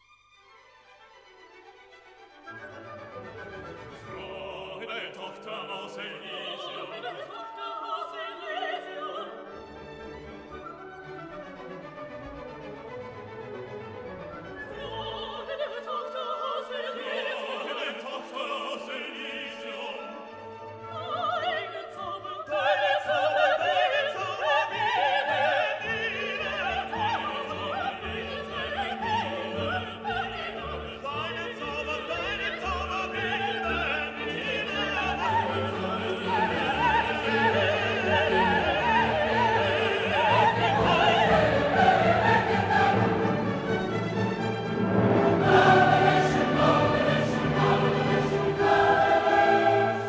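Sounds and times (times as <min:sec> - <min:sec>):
classical orchestral music: 0:00.0 - 0:50.0
operatic singing: 0:03.0 - 0:11.7, 0:13.5 - 0:50.0.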